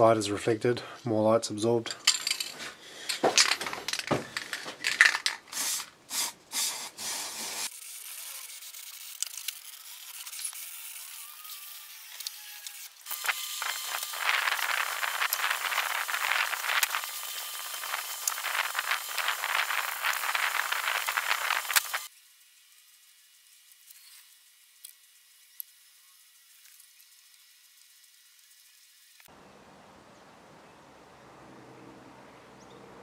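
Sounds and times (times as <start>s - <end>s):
spray can shaken with ball rattling: 2.1s - 7.7s, 13.2s - 22.1s
spray paint hissing: 4.4s - 12.4s, 13.0s - 29.3s.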